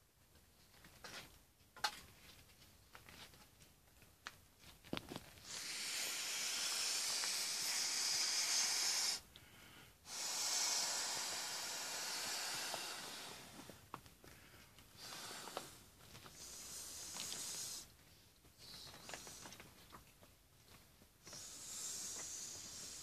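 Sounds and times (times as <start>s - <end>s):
air hissing into inflatable: 5.4s - 9.3s, 10.0s - 13.8s, 15.0s - 17.9s, 18.6s - 19.6s, 21.2s - 23.0s.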